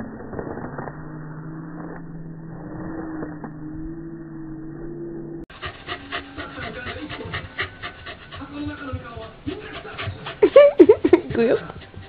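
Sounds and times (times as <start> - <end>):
motor hum: 0.0 - 8.4.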